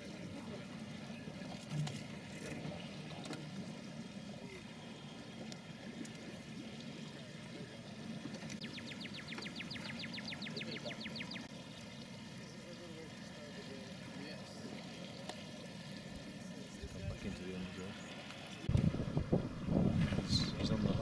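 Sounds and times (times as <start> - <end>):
low rumble with water: 0.0 - 21.0.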